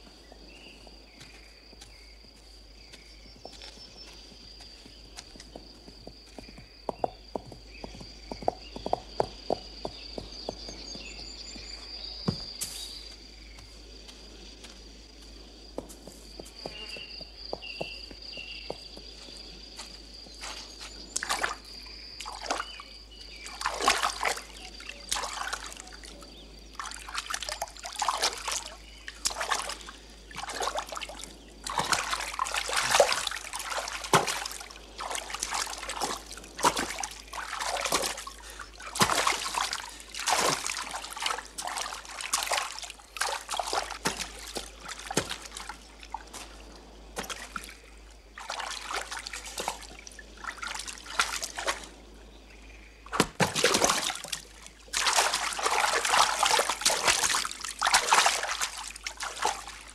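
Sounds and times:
water splashing: 23.4 - 52.0, 53.1 - 59.9.

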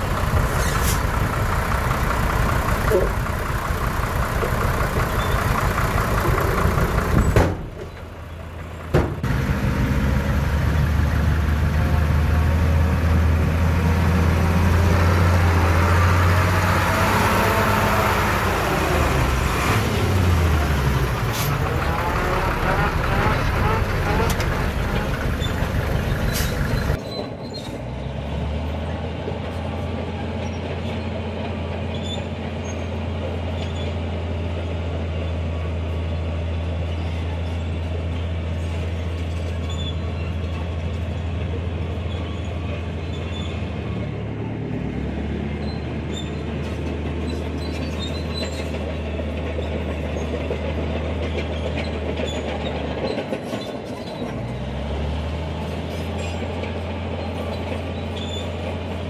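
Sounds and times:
bulldozer diesel engine running: 0.0 - 59.0
crawler tracks clicking: 18.3 - 27.0.

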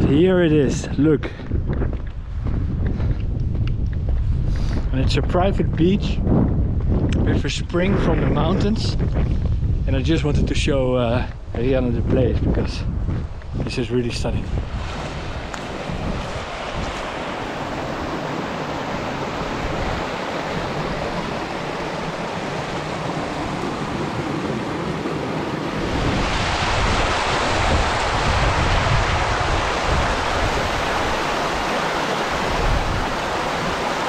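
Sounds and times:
wind rumbling on microphone: 0.0 - 34.0
stream rushing over rocks: 14.6 - 34.0.

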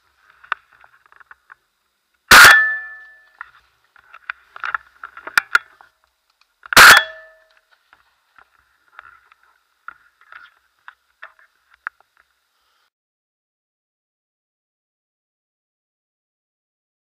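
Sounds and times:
gun handling clicks and knocks: 3.4 - 12.3.

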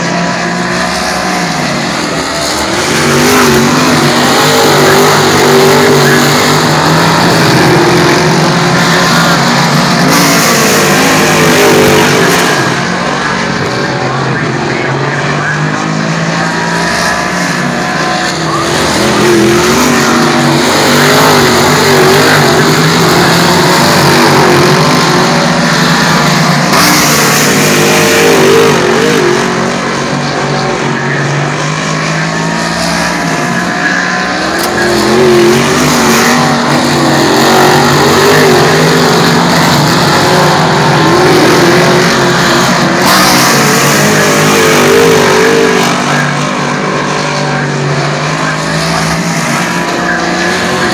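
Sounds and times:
race car engines revving: 0.0 - 50.9.

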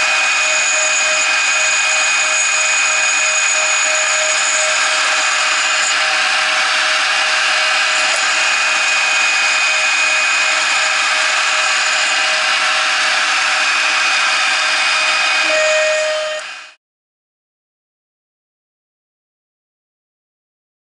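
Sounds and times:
end mill cutting metal: 0.0 - 16.8
router spindle whine: 0.0 - 16.8.

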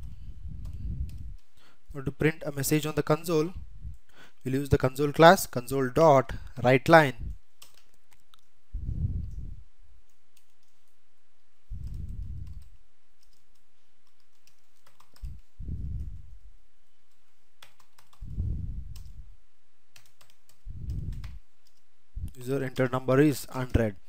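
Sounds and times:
low muffled puffs: 8.7 - 9.6, 11.7 - 12.6, 15.2 - 16.5, 18.2 - 19.3.

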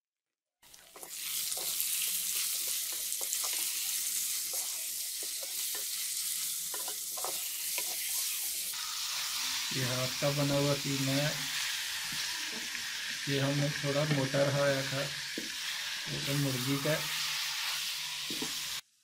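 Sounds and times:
meat sizzling in hot oil: 0.6 - 19.0
wooden spoon scraping a pot: 6.7 - 8.4.

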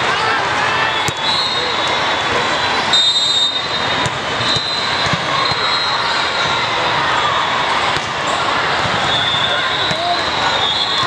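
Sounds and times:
crowd noise: 0.0 - 11.0
shoe squeaks: 3.2 - 6.2
balls being hit: 4.0 - 5.6, 7.9 - 8.2.

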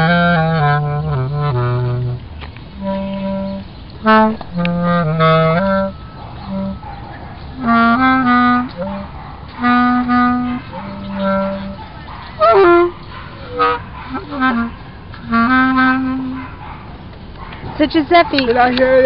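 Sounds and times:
bass clarinet playing low notes: 0.0 - 6.9, 7.6 - 11.8, 12.4 - 16.4.

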